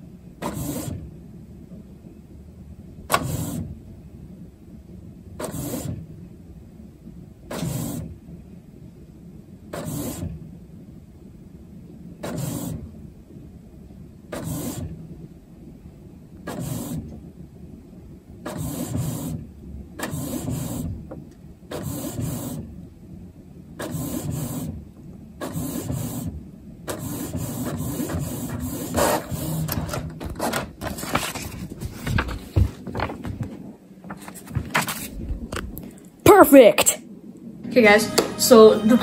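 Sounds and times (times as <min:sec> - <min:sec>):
printer head whirring: 0:23.8 - 0:35.9
paper rustling: 0:28.5 - 0:36.0.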